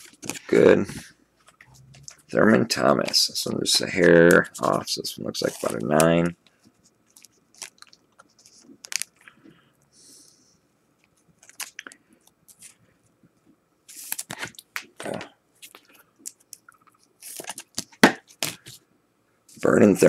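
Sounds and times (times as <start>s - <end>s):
plastic sleeve crinkling: 1.4s - 9.3s, 11.4s - 12.8s.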